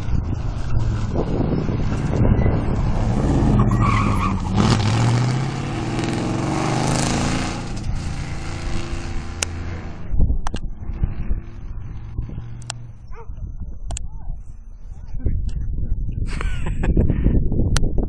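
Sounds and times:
rally car engine revving past: 0:00.2 - 0:10.2.

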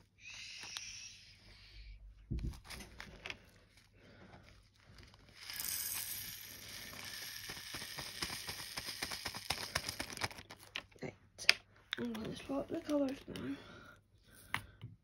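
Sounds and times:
small pieces rattling: 0:04.8 - 0:10.8.

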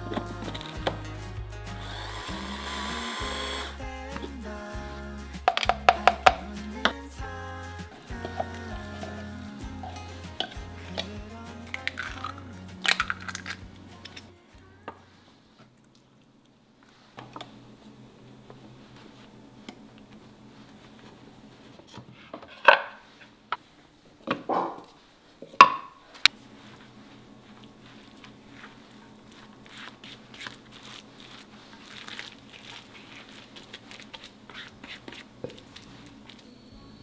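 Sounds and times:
batter being stirred: 0:03.6 - 0:14.3, 0:26.6 - 0:36.4.

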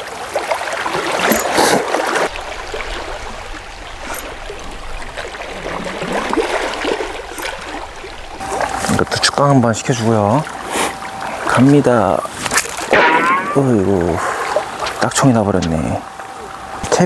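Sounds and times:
water lapping against rocks: 0:00.0 - 0:15.1.

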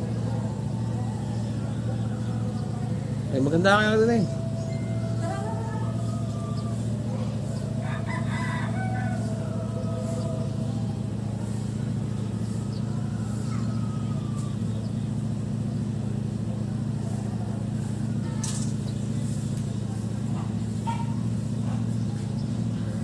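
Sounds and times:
low hum: 0:00.0 - 0:23.0
rooster crowing: 0:04.3 - 0:15.6.

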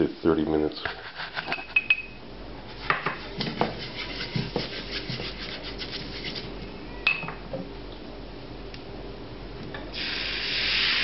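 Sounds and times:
paper towel rubbing a frying pan: 0:02.7 - 0:06.6.

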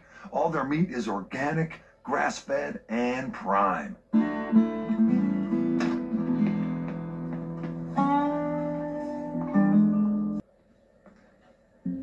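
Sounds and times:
guitar held notes: 0:04.1 - 0:10.4.

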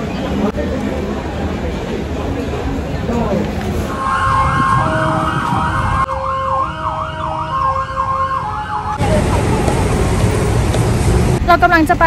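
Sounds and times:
traffic noise: 0:00.0 - 0:12.0
emergency siren wailing: 0:03.9 - 0:09.2.

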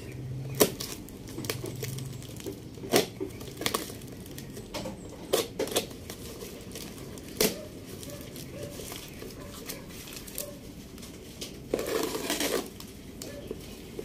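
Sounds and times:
tape and cardboard crinkling: 0:00.0 - 0:14.0
knife slicing cardboard parcel: 0:11.7 - 0:12.8
sharp tearing rips: 0:11.7 - 0:12.9.

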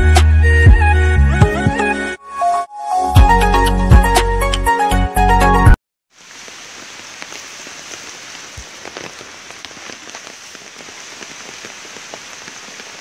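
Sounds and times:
rain on standing water: 0:06.1 - 0:13.0.

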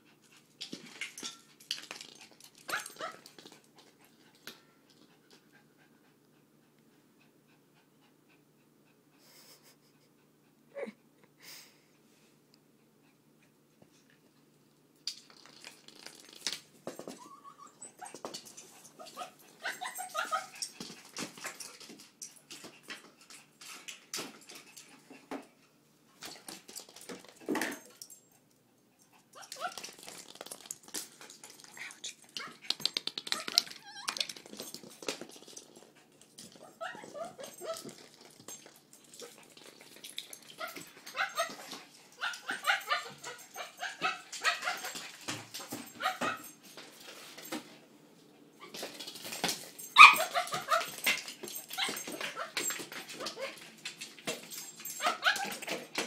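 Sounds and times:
small dog whining and yipping: 0:17.1 - 0:18.2, 0:19.0 - 0:20.6, 0:33.3 - 0:34.3, 0:36.6 - 0:38.1, 0:40.5 - 0:45.0, 0:50.0 - 0:51.0, 0:54.9 - 0:55.8.

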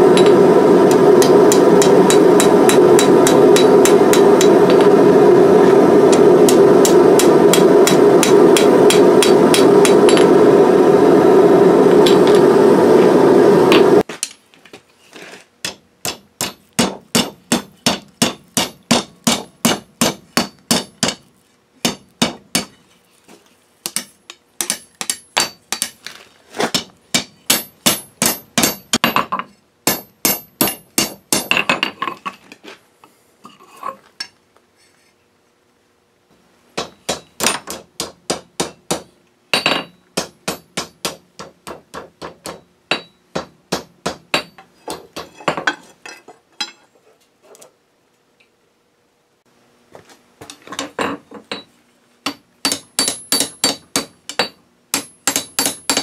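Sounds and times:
hammer striking steel on anvil: 0:00.0 - 0:05.0, 0:06.1 - 0:10.4, 0:15.6 - 0:21.2, 0:21.8 - 0:22.8, 0:23.8 - 0:26.0, 0:26.7 - 0:32.1, 0:36.8 - 0:45.8, 0:51.0 - 0:56.0.

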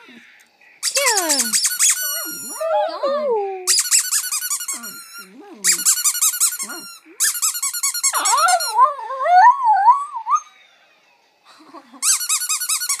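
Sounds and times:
dog howling: 0:02.0 - 0:03.7, 0:08.2 - 0:10.6.

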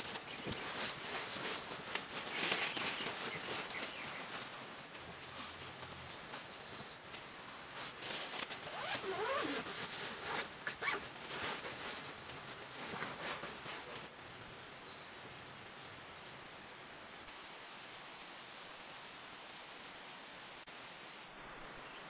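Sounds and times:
heavy rain on a tent: 0:00.0 - 0:15.5.

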